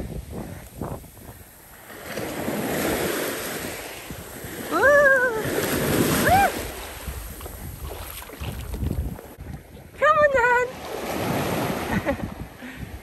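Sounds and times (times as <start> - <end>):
small waves washing over sand: 0.0 - 13.0.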